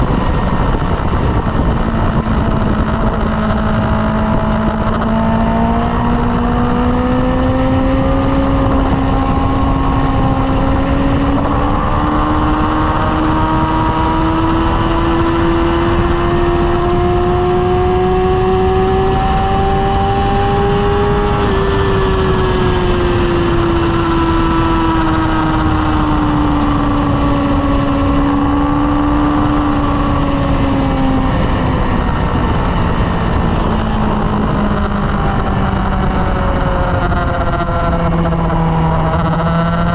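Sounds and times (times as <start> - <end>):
motorcycle engine cruising: 0.0 - 39.9
wind rumble on microphone: 0.0 - 39.9.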